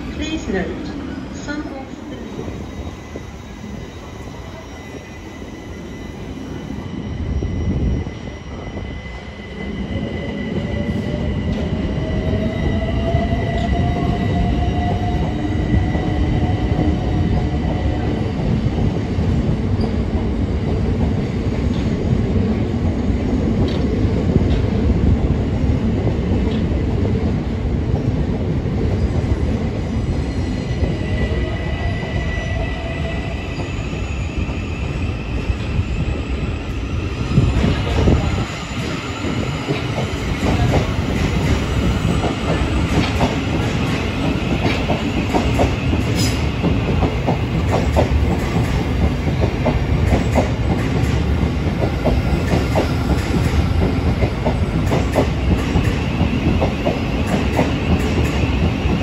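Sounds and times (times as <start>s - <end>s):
train wheel rumble: 30.7s - 59.0s.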